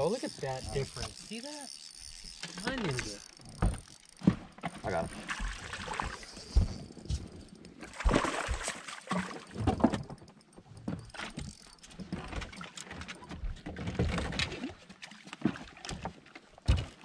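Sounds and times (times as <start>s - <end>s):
water splashing against boat: 2.4s - 10.3s
knocks and thumps on hull: 3.5s - 7.2s, 15.4s - 17.0s.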